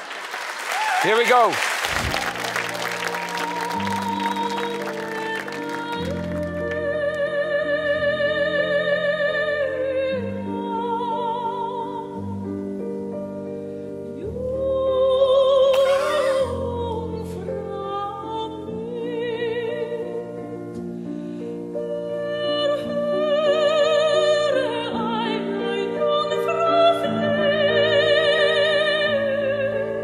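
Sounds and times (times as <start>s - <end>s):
operatic singing with vibrato: 15.7s - 17.1s.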